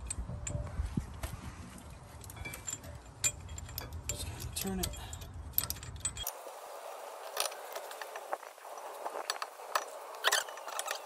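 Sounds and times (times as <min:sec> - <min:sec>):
hand tool turning a bolt: 0:02.3 - 0:06.4, 0:07.4 - 0:11.0.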